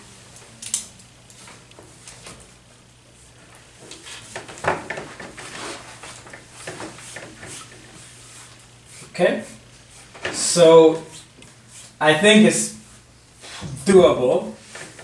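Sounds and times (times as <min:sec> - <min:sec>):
steady low hum: 0:00.0 - 0:15.0
rustling and knocking handling noises: 0:03.4 - 0:09.2.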